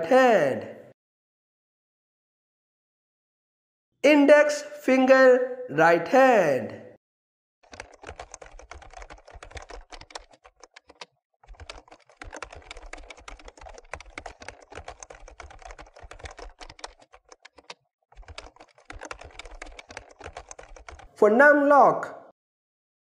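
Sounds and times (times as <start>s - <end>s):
fast typing on keyboard: 7.6s - 21.2s.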